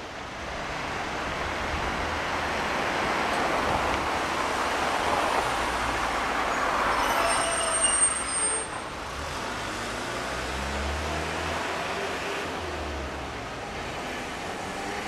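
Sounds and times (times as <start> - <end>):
road traffic: 0.0 - 15.0
tram running on street track: 0.0 - 15.0
high squeal: 6.5 - 8.9.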